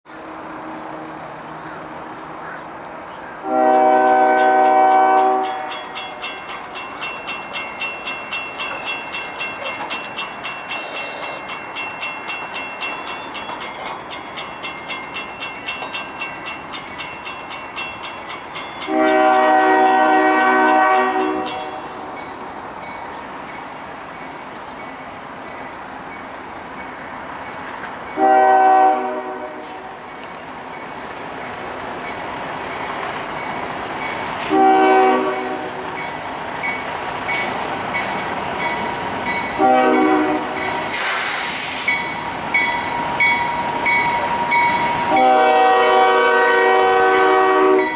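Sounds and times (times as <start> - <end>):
locomotive air horn blasts: 3.4 - 5.7, 18.9 - 22.0, 28.2 - 30.0, 34.4 - 35.9, 39.6 - 41.9, 45.0 - 47.9
crossing warning bell ringing: 3.5 - 47.9.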